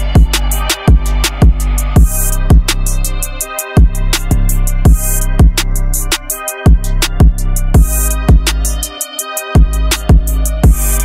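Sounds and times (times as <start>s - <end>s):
deep kick drum: 0.0s - 2.8s, 3.8s - 5.8s, 6.7s - 8.6s, 9.6s - 11.0s
hi-hat ticks: 0.0s - 11.0s
music with steady beat: 0.0s - 11.0s.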